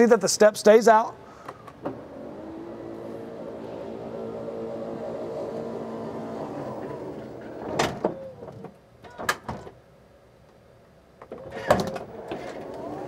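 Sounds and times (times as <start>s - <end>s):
sliding door latching thunk: 1.5s - 9.8s, 11.2s - 13.0s
electric motor humming: 1.9s - 7.6s.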